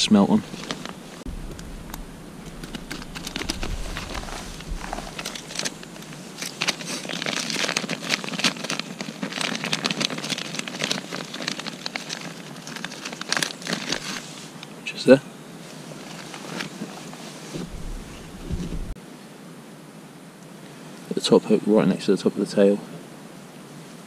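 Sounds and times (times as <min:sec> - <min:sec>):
plastic crinkling: 0:00.4 - 0:14.6, 0:15.9 - 0:19.0.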